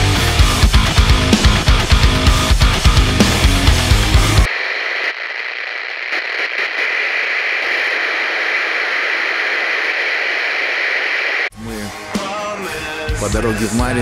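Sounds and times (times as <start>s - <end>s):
static hiss: 4.2s - 11.5s
faint crackles: 4.5s - 11.5s.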